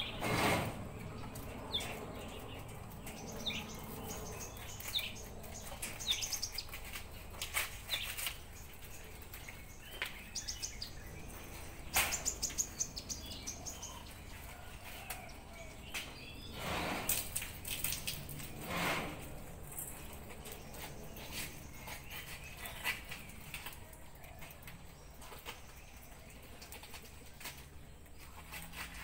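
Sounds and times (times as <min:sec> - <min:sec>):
rustle: 0:00.0 - 0:29.0
rabbits chewing cabbage: 0:00.1 - 0:29.0
bird chirps and trills: 0:01.2 - 0:14.4.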